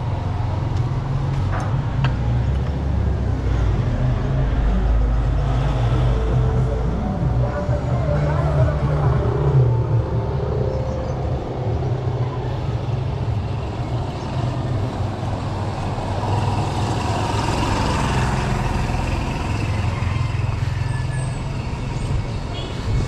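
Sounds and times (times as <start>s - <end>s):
steady low rumble: 0.0s - 16.1s
vehicles driving along road: 0.0s - 23.0s.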